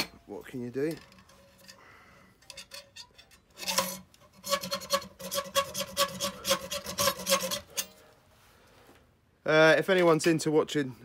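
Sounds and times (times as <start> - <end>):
hacksaw cutting metal: 2.4 - 8.0.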